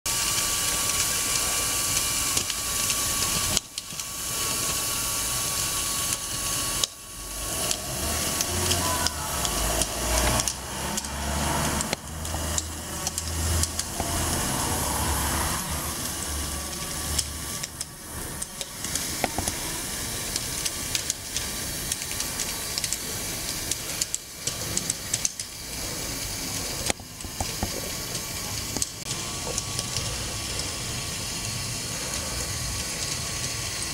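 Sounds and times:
electric motors whirring: 0:00.1 - 0:33.9
metal track links clicking on paving: 0:07.6 - 0:14.7, 0:20.3 - 0:33.6.

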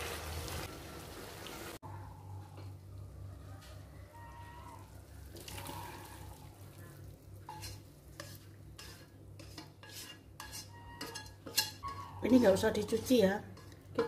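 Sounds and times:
metal spatula scraping wok: 0:07.4 - 0:14.0.

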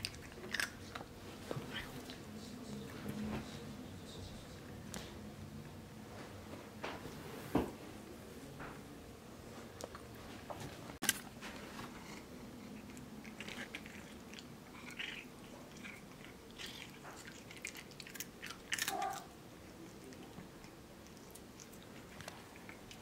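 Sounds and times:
cat chewing and crunching treats: 0:00.0 - 0:05.2, 0:11.0 - 0:23.0.

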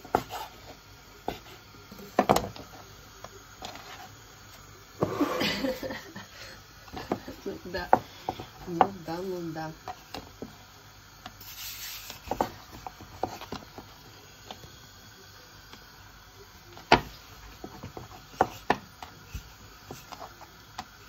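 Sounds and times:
knocks and taps of kitchen objects: 0:02.1 - 0:02.7, 0:06.9 - 0:09.0.

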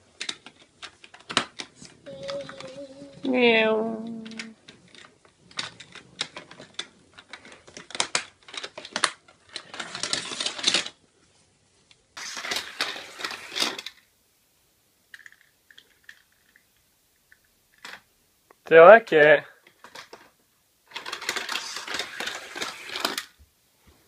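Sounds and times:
toy cars clattering down plastic ramps: 0:04.2 - 0:11.0, 0:12.2 - 0:14.1, 0:15.1 - 0:16.7, 0:19.6 - 0:20.3, 0:20.9 - 0:23.4.

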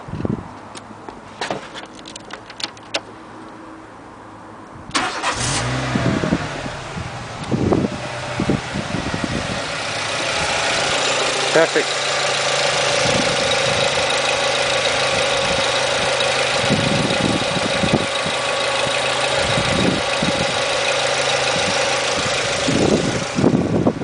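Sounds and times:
car engine idling with whine: 0:05.6 - 0:24.0.

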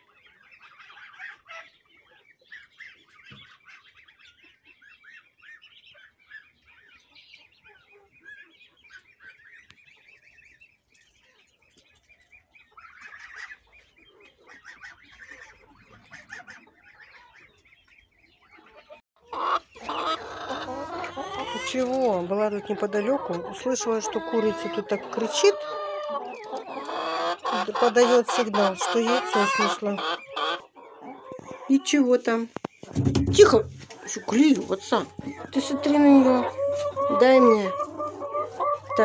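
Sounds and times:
chickens clucking: 0:00.0 - 0:39.0
ducklings peeping: 0:00.0 - 0:39.0
geese calling: 0:18.6 - 0:32.1, 0:32.8 - 0:39.0.

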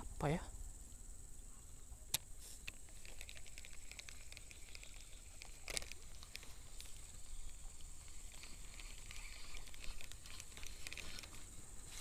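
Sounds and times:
fishing reel clicks: 0:02.1 - 0:11.5
fishing reel ticking: 0:02.1 - 0:12.0.

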